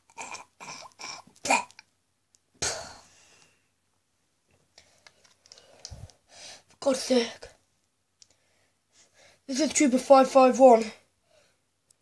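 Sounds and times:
person making mouth noises: 0:00.0 - 0:01.9.

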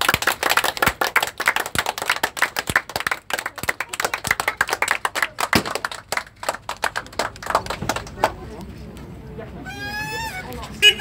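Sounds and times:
people clapping: 0:00.0 - 0:08.7.

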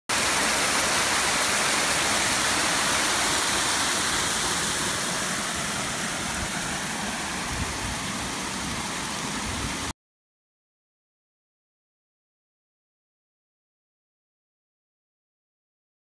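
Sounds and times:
waterfall rushing over rock: 0:00.1 - 0:09.9.

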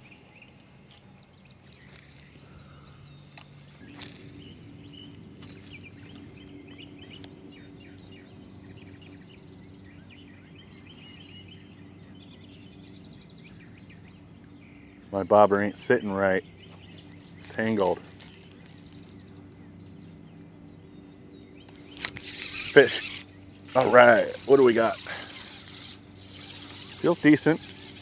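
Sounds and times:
low engine hum: 0:00.0 - 0:28.0
small birds chirping: 0:00.0 - 0:28.0.

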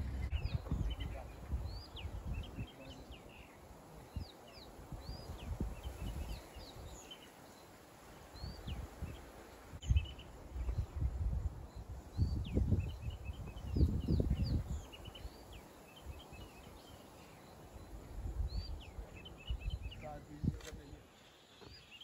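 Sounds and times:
low rumbling: 0:00.0 - 0:02.5
birds whistling and chirping: 0:00.0 - 0:07.3, 0:09.8 - 0:10.9, 0:11.6 - 0:21.0.

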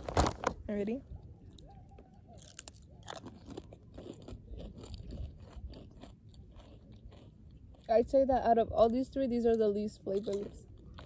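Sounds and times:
crunching potato chips: 0:01.4 - 0:08.2, 0:09.0 - 0:11.0.

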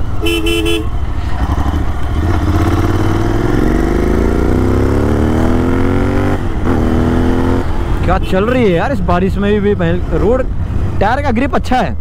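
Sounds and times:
motorcycle engine accelerating: 0:01.0 - 0:08.0.

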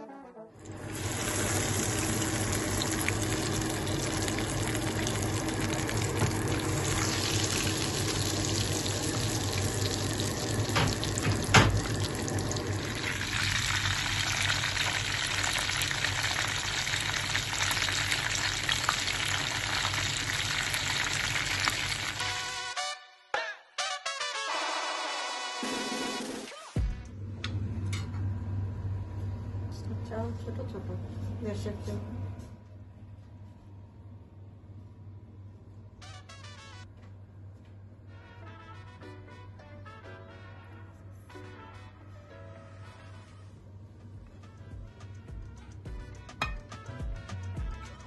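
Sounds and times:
chicken sizzling in hot oil: 0:00.7 - 0:22.8
low hum: 0:26.8 - 0:36.0.

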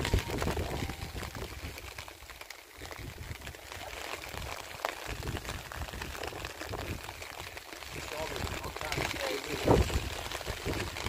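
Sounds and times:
light rain pattering: 0:00.0 - 0:11.0.

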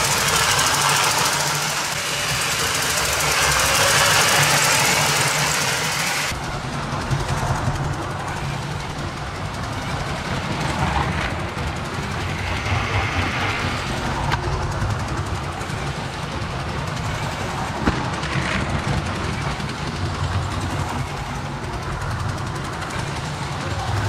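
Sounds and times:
toy train rattling on plastic track: 0:00.0 - 0:24.0.

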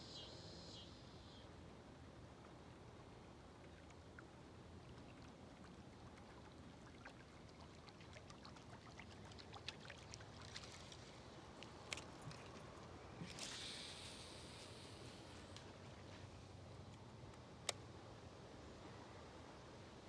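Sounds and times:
low hiss: 0:00.0 - 0:05.2, 0:10.6 - 0:20.0
light water sounds: 0:02.0 - 0:20.0.

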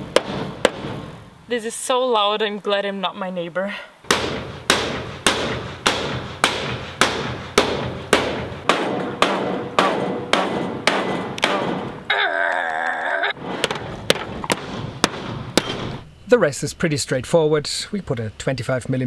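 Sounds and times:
hammer blows on sheet metal: 0:04.1 - 0:12.0, 0:13.4 - 0:16.0.

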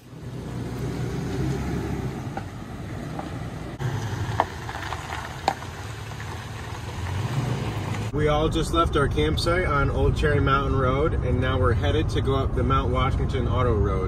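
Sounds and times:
truck engine running: 0:00.0 - 0:08.1
tyres crunching over gravel: 0:00.2 - 0:08.1
stones popping: 0:03.1 - 0:08.1.

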